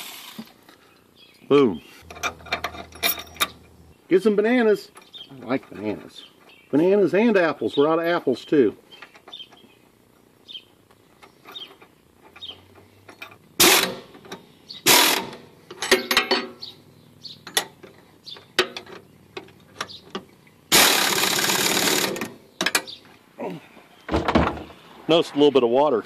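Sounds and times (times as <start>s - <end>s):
pneumatic impact wrench hammering: 2.0s - 3.8s, 13.6s - 16.6s, 20.7s - 22.9s.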